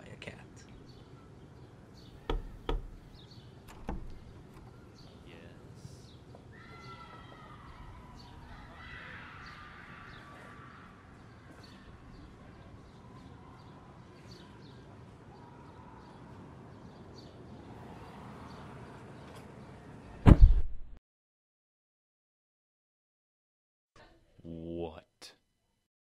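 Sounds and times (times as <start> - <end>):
small birds chirping: 0.3 - 19.8.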